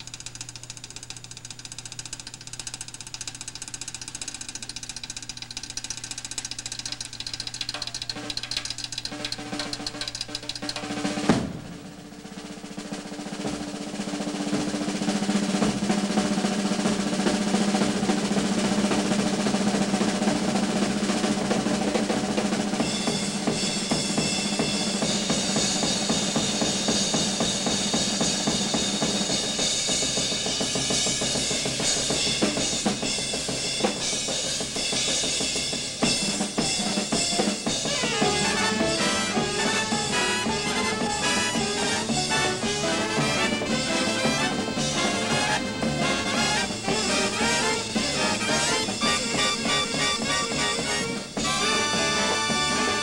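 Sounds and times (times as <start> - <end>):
drum roll: 0.0 - 53.0
cymbals: 9.4 - 53.0
brass section playing: 36.6 - 53.0.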